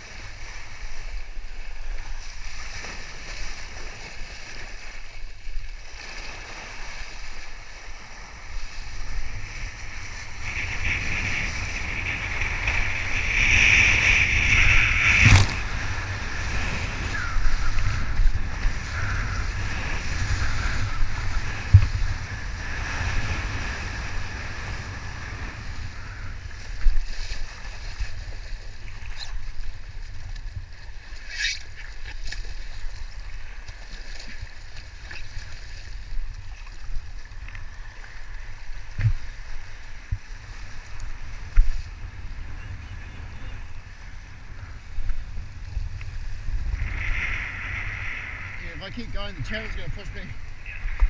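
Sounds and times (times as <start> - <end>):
water rushing under board: 0.0 - 51.0
wind buffeting microphone: 7.0 - 31.1, 34.4 - 51.0.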